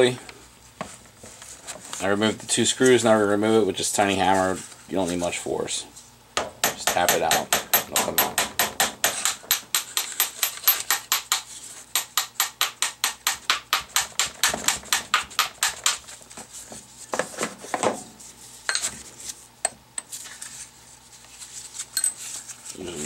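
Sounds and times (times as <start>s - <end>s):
small hammer tapping metal: 6.4s - 16.0s.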